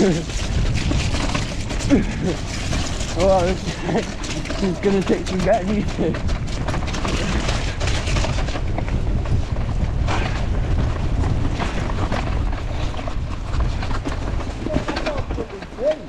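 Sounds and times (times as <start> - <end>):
low rumble: 0.0 - 16.0
mountain bike clattering: 0.0 - 16.0.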